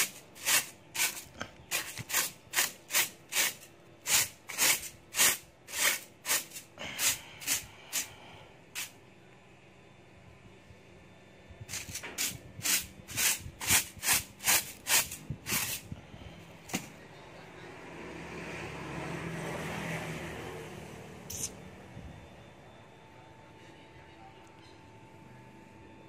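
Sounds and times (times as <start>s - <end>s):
straw broom sweeping sawdust: 0.0s - 8.2s, 11.7s - 15.9s.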